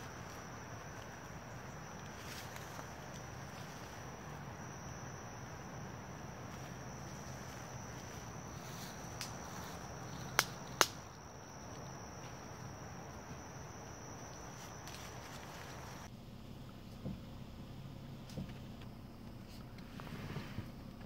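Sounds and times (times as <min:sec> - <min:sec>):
high-pitched insect drone: 0:00.0 - 0:16.1
woodland ambience: 0:00.0 - 0:21.0
sharp snaps: 0:09.1 - 0:09.4, 0:10.1 - 0:11.2.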